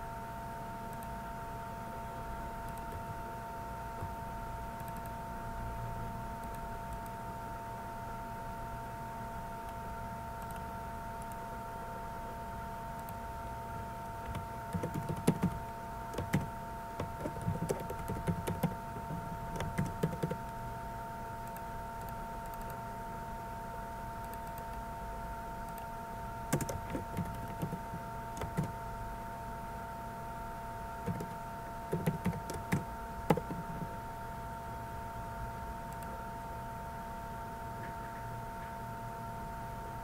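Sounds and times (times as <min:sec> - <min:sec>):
electrical hum: 0:00.0 - 0:40.0
keyboard typing: 0:02.6 - 0:03.2, 0:04.8 - 0:05.2, 0:14.2 - 0:20.6, 0:26.5 - 0:28.8, 0:31.0 - 0:34.0
mouse clicks: 0:04.8 - 0:05.2, 0:10.4 - 0:11.4, 0:21.4 - 0:22.8, 0:24.2 - 0:24.8, 0:25.7 - 0:25.9, 0:35.9 - 0:36.2.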